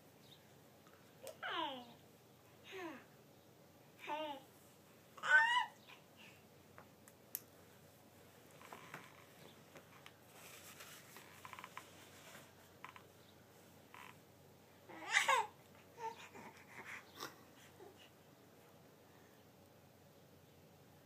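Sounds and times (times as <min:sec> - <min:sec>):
faint soft play sounds: 0:00.0 - 0:21.0
baby squealing: 0:05.2 - 0:05.8.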